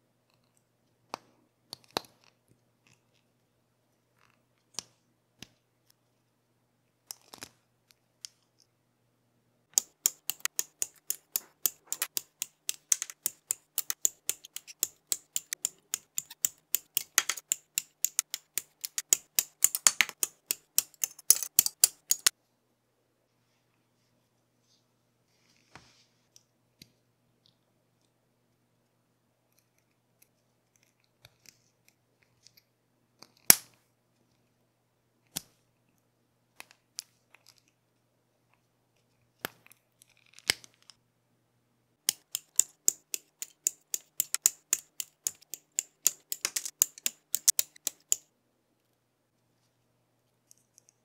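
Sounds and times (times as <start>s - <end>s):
plastic parts clicking: 9.7s - 22.3s, 42.0s - 48.3s.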